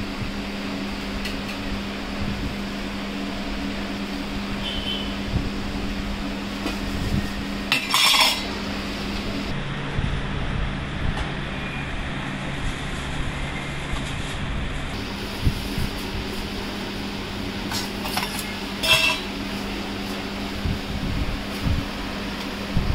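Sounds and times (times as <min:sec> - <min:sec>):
steady low hum: 0:00.0 - 0:22.9
spoons clinking on steel pots: 0:07.7 - 0:08.6, 0:17.7 - 0:19.4.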